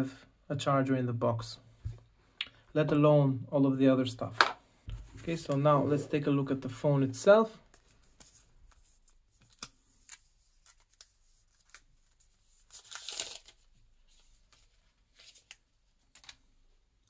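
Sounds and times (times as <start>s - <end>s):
plastic film tearing rustle: 9.4s - 13.7s.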